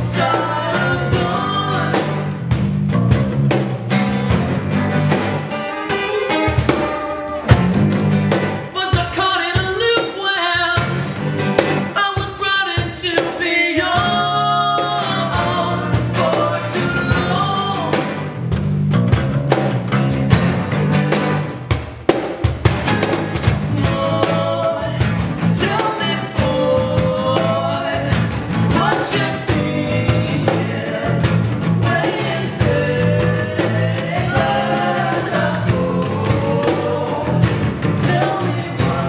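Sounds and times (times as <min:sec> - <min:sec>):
person singing: 0:00.0 - 0:02.3, 0:08.7 - 0:11.0, 0:12.0 - 0:18.1, 0:23.7 - 0:39.0
acoustic bass guitar: 0:00.0 - 0:39.0
strummed acoustic guitars: 0:00.0 - 0:39.0.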